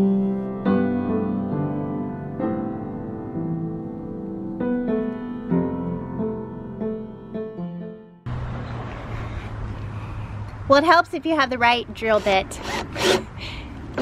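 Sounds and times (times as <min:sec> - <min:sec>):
gentle solo piano melody: 0:00.0 - 0:08.2.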